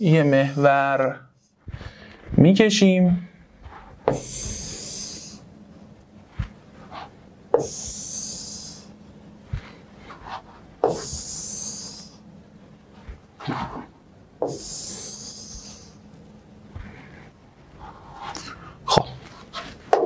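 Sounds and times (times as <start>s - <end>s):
pen hissing across whiteboard: 3.7s - 5.4s, 6.8s - 8.9s, 9.6s - 12.2s, 14.4s - 16.0s.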